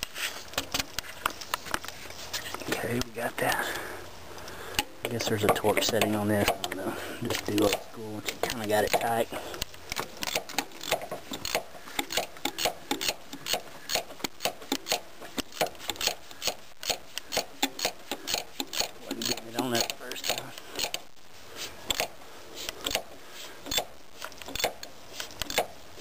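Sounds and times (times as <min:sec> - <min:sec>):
ratchet wrench clicking: 0:10.2 - 0:21.0.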